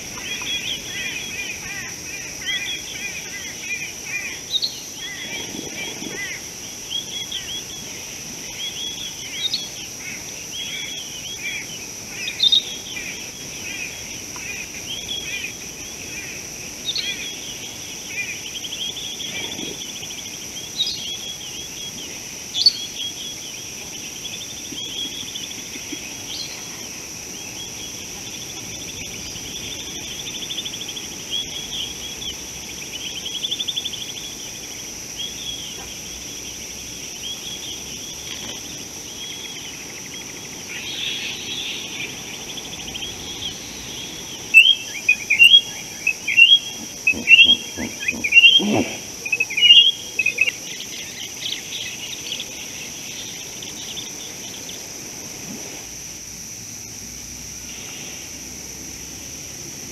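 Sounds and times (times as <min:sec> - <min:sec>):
birds chirping and warbling: 0:37.2 - 0:54.9.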